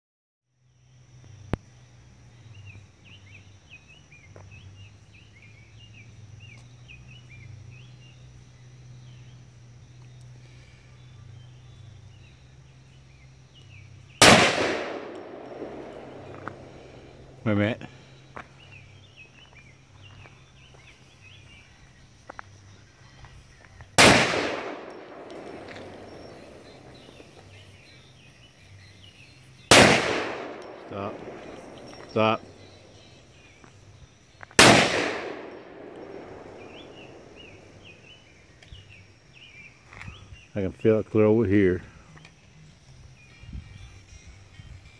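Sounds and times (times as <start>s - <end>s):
songbird chirping: 0.6s - 44.9s
steady low hum: 0.7s - 39.7s
pistol shot with echo: 14.2s - 17.4s, 24.0s - 27.4s, 29.6s - 33.0s, 34.6s - 38.0s.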